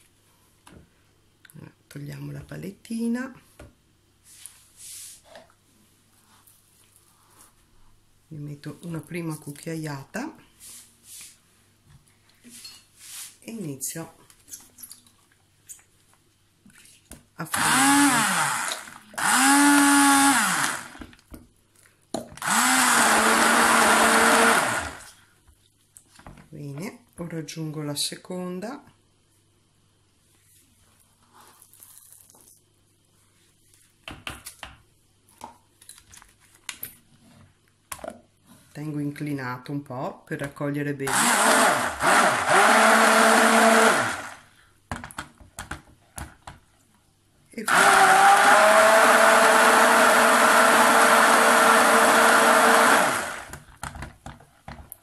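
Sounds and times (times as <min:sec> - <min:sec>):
stick blender running: 0:17.5 - 0:21.1, 0:22.4 - 0:25.2, 0:41.1 - 0:44.5, 0:47.6 - 0:53.6.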